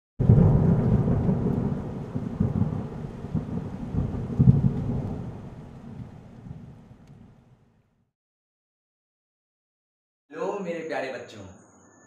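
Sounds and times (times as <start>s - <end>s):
thunder rumbling: 0.2s - 7.7s.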